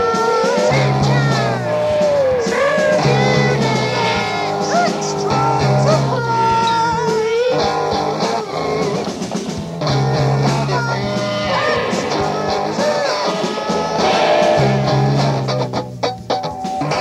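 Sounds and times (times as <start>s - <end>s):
person singing: 0.0s - 9.1s, 9.9s - 15.2s
guitar: 0.0s - 17.0s
low bass line: 9.8s - 13.3s, 13.9s - 16.0s.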